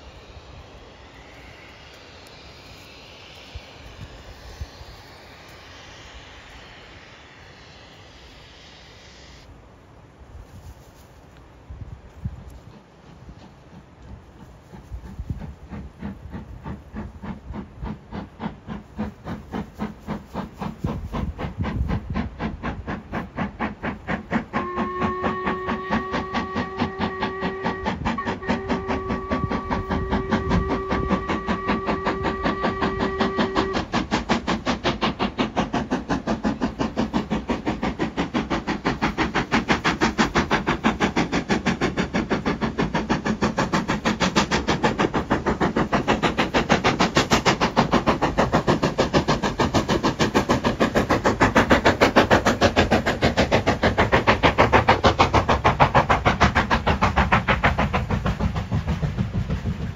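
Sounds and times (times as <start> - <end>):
steam locomotive exhaust beating: 0.0 - 59.9
steam whistle blast: 24.5 - 34.1.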